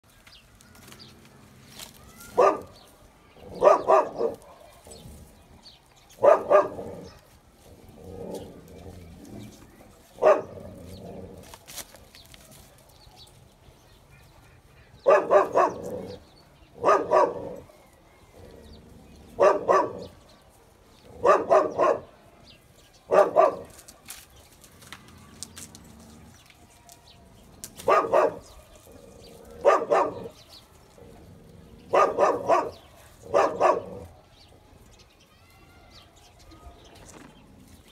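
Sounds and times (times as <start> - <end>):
dog barking: 2.2 - 2.8, 3.5 - 5.0, 6.2 - 6.9, 10.2 - 10.6, 15.0 - 16.2, 16.8 - 17.7, 19.3 - 20.2, 21.2 - 22.1, 23.1 - 23.8, 27.8 - 28.7, 29.6 - 30.4, 31.9 - 34.1.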